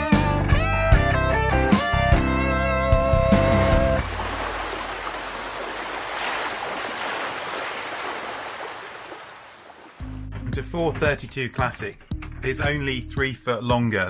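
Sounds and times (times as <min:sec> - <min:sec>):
sea waves washing: 0:03.3 - 0:10.1.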